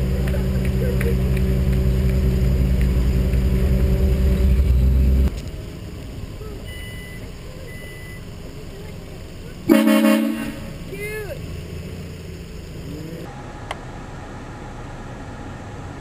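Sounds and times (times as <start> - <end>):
parking lot background: 0.0 - 16.0
vehicle engine idling: 0.0 - 16.0
faint short beeps: 6.6 - 8.3.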